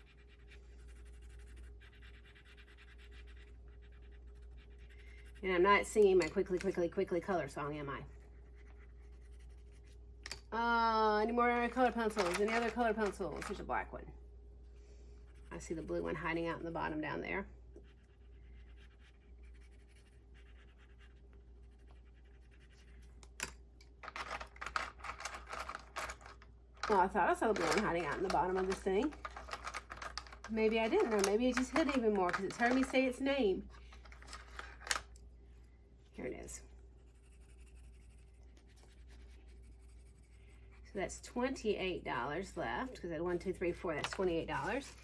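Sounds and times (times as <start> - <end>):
pencil scratching on paper: 0.0 - 6.2, 7.7 - 10.0, 17.7 - 23.2, 37.0 - 40.9
low steady hum: 0.0 - 45.0
pencils clacking: 11.8 - 13.6, 23.3 - 33.1, 34.0 - 35.1, 44.0 - 44.9.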